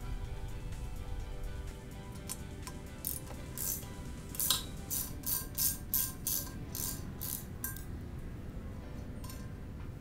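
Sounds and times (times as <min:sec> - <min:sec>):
background music: 0:00.0 - 0:10.0
ratchet wrench clicking: 0:02.2 - 0:07.9.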